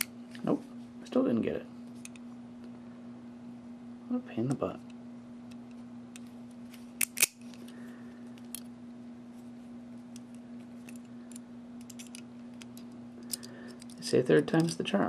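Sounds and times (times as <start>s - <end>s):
steady low hum: 0.0s - 15.0s
padlock metallic clicks: 7.0s - 7.4s.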